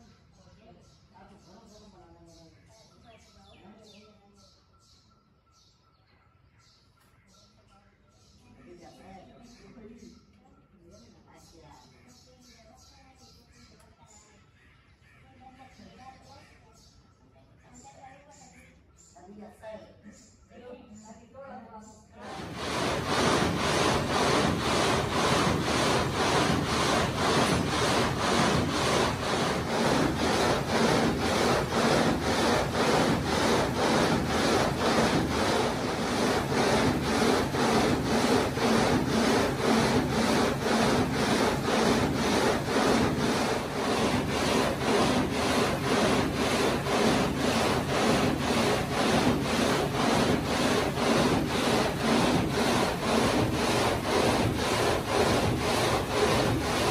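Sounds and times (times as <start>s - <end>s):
gang saw rasping through stone: 22.2s - 56.9s.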